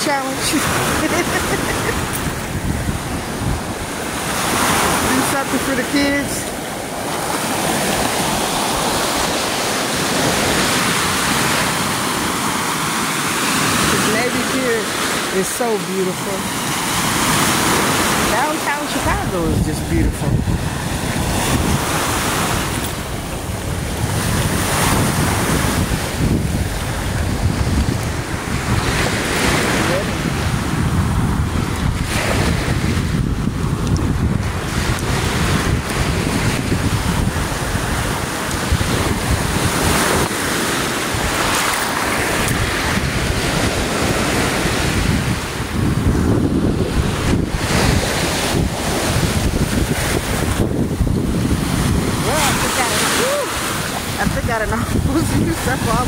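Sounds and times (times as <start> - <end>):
small waves washing on pebbles: 0.0 - 56.0
wind buffeting microphone: 0.0 - 56.0.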